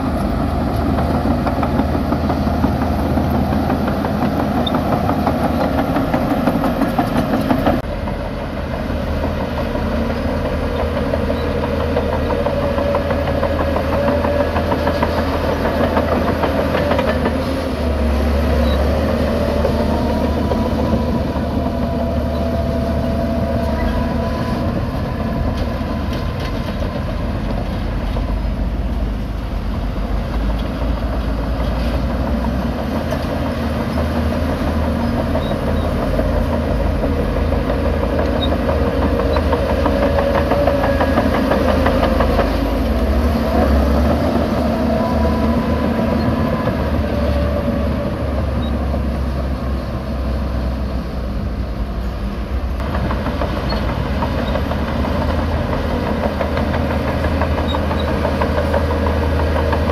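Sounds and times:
heavy diesel engines running: 0.0 - 59.9.

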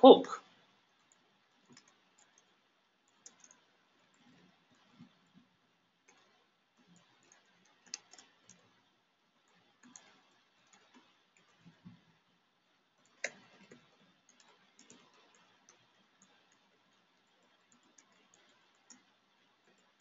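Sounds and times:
computer keyboard keystrokes: 1.0 - 2.5, 3.1 - 4.9, 6.1 - 8.7, 9.8 - 11.8, 13.0 - 20.0.

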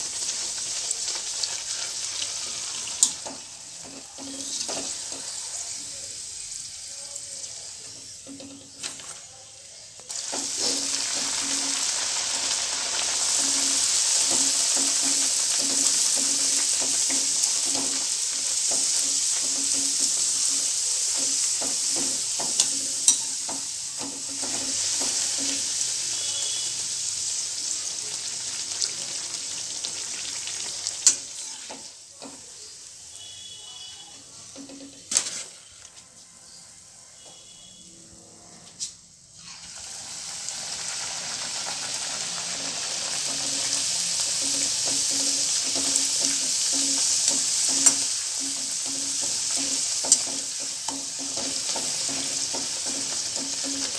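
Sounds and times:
hot oil sizzling: 0.0 - 37.9, 38.8 - 53.9
metal spoon clicking against pan: 22.4 - 23.6, 50.0 - 52.6.

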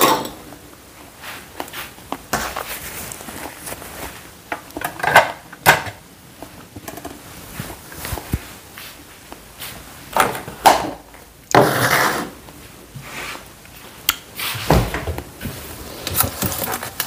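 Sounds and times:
kitchen knocks and clatters: 0.0 - 0.6, 4.5 - 6.0, 10.1 - 12.3, 14.6 - 17.0
rustling noise: 0.9 - 4.5, 6.3 - 10.6, 11.6 - 17.0.

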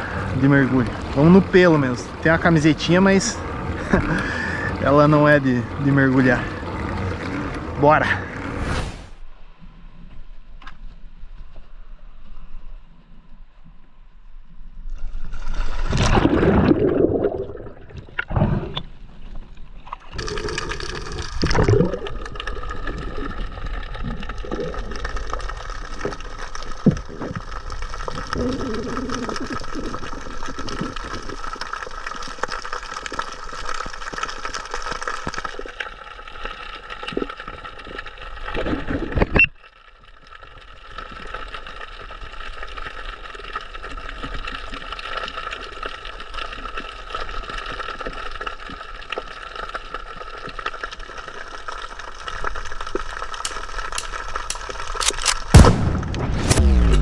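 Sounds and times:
muffled underwater noise: 0.0 - 8.4, 26.7 - 31.4
sharp clicks: 53.4 - 57.0.

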